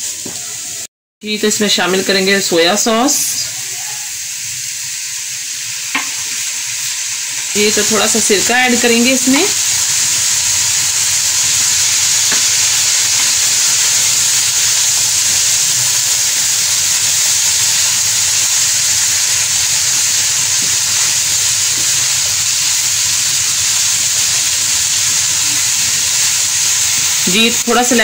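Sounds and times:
vegetables sizzling in a wok: 0.0s - 28.0s.

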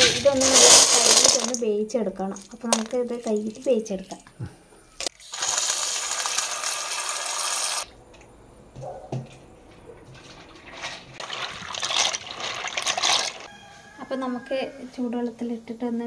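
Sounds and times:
soft water sounds: 9.9s - 13.5s
tap water running into bowl: 10.0s - 13.5s.

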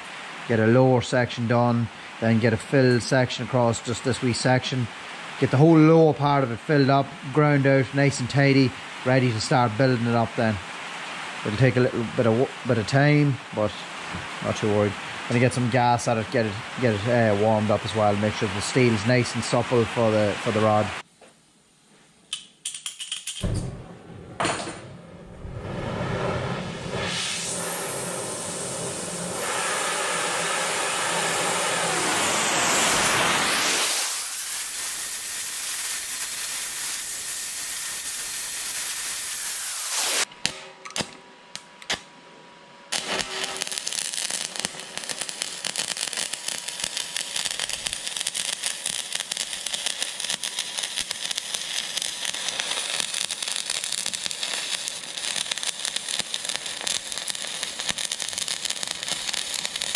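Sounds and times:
gas torch hissing: 0.0s - 21.0s, 24.4s - 40.3s, 42.9s - 59.9s
welding arc crackling: 26.2s - 42.1s, 42.9s - 59.9s.

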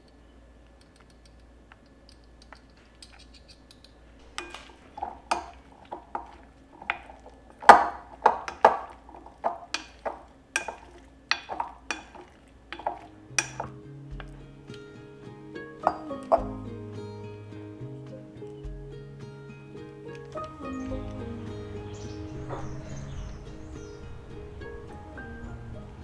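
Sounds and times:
spoon clinking in glass bowl: 4.4s - 5.6s, 8.2s - 13.7s, 15.8s - 16.5s.

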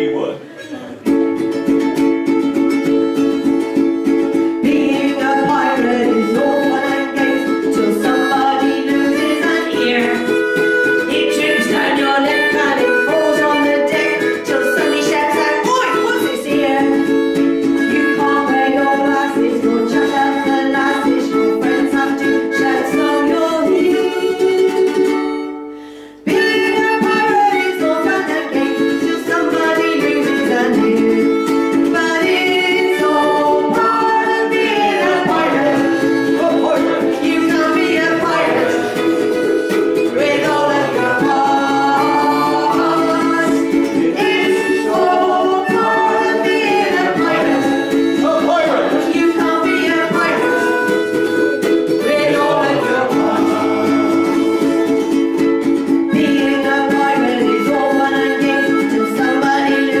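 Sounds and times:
strummed ukulele: 0.0s - 60.0s
harmonica melody: 1.0s - 60.0s.

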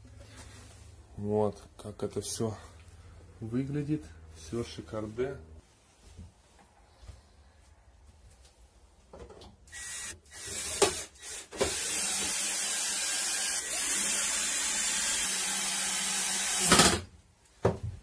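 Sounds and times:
cordless drill into sheet metal: 9.7s - 17.1s.

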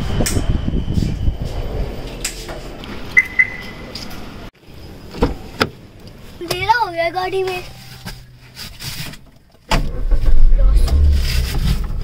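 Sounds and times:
short electronic beeps: 3.2s - 3.9s
car doors shutting: 5.1s - 5.8s.

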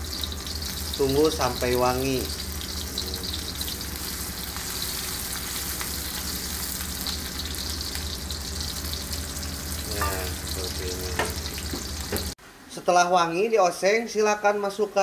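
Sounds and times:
food sizzling in hot oil: 0.0s - 12.4s.

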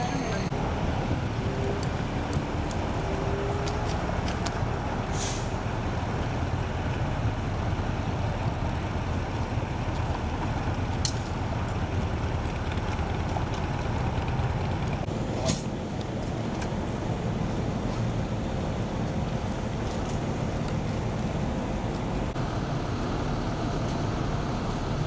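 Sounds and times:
heavy vehicles idling: 0.0s - 25.0s
road traffic: 0.0s - 25.0s
air hiss: 5.1s - 5.6s.

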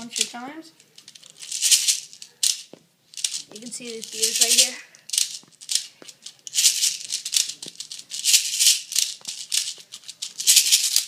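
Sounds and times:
plastic pellets rattling in loader: 3.2s - 11.0s.

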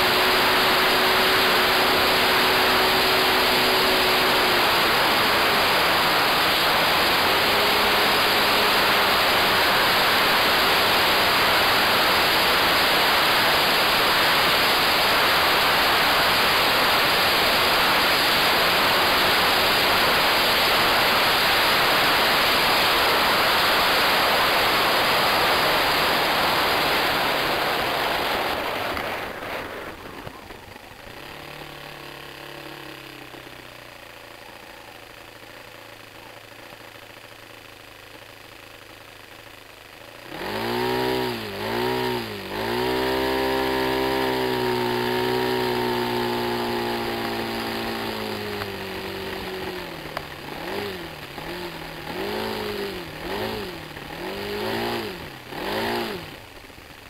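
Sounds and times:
rush of wind and propeller: 0.0s - 31.0s.

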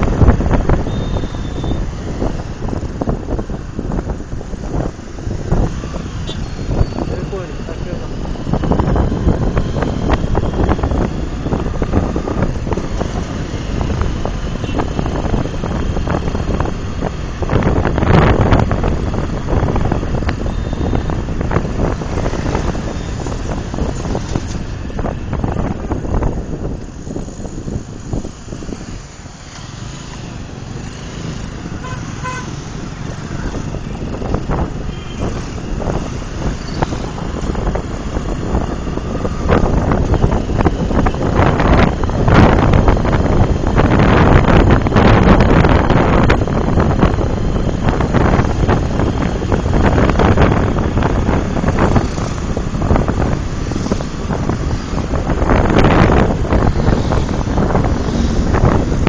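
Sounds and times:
motorcycle engine: 0.0s - 59.0s
road traffic: 0.0s - 59.0s
wind rushing over microphone: 0.0s - 59.0s
vehicle horn toot: 0.9s - 1.8s, 31.8s - 32.6s.

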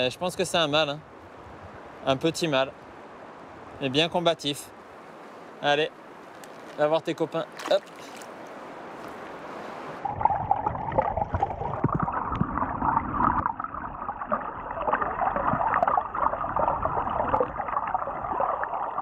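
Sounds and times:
river water rushing: 4.7s - 10.0s.

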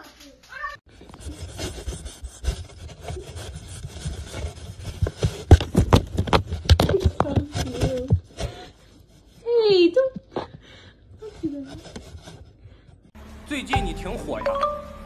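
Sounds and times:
cat scratching cardboard box: 1.2s - 8.6s.

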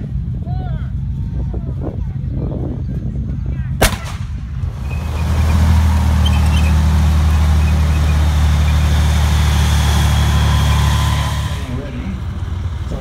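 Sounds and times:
tank driving by: 0.0s - 13.0s
tank engine running: 0.0s - 13.0s
sharp bang: 3.8s - 4.5s.

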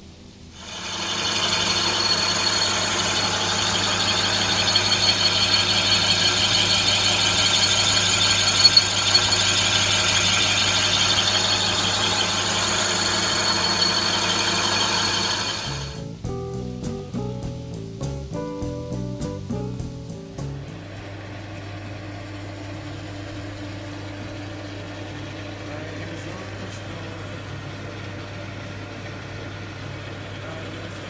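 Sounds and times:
cutting tool squealing: 0.6s - 16.0s
lathe humming: 0.6s - 16.0s, 20.8s - 31.0s.

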